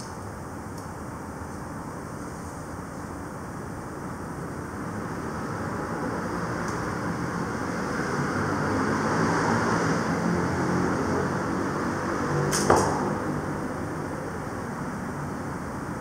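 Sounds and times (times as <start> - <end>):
background hiss and rumble: 0.0 - 8.6
bowstring snapping: 12.5 - 13.1.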